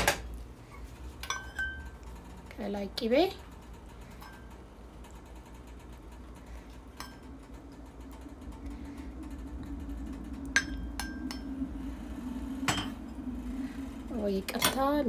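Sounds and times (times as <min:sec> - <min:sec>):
faint steady hum: 0:00.0 - 0:15.0
utensil clinking on a dish: 0:01.2 - 0:02.0.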